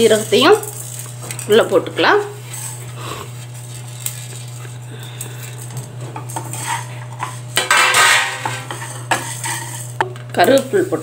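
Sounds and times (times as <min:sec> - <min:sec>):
seeds rattling in pan: 0:00.0 - 0:10.8
spatula scraping metal pan: 0:02.4 - 0:04.6, 0:05.4 - 0:10.0.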